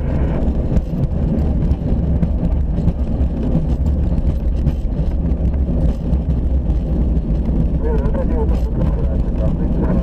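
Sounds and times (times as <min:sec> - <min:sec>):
low cockpit rumble: 0:00.0 - 0:10.0.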